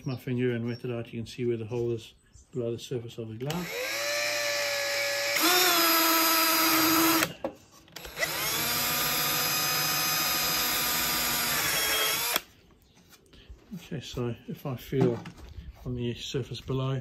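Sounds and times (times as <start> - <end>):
cordless drill whining: 3.5 - 12.5.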